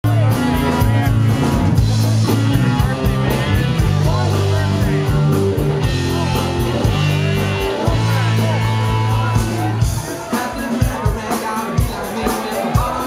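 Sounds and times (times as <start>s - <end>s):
rock band playing live: 0.0s - 13.0s
electric guitar bent notes: 0.1s - 10.1s.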